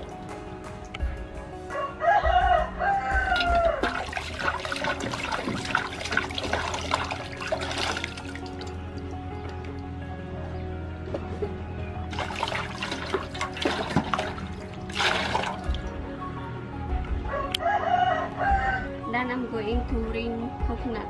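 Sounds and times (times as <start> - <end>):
water splashing in a metal basin: 0.0 - 1.0, 3.2 - 9.9, 12.1 - 16.0
background music with low beat: 0.0 - 21.0
rooster crowing: 1.7 - 3.9, 17.3 - 19.0.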